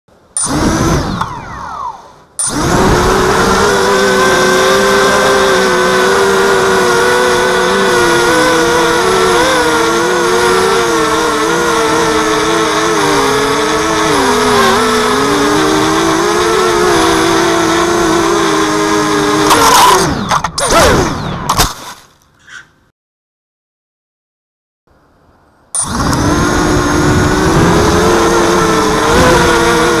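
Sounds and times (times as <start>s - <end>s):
quadcopter motors buzzing: 0.4s - 21.6s, 25.8s - 30.0s.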